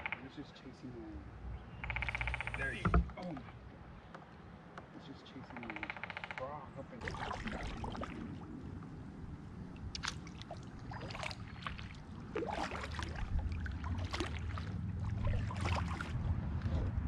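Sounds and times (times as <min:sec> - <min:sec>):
kayak paddle splashing water: 0:07.0 - 0:09.0, 0:09.6 - 0:16.7
low rumble: 0:10.7 - 0:17.0.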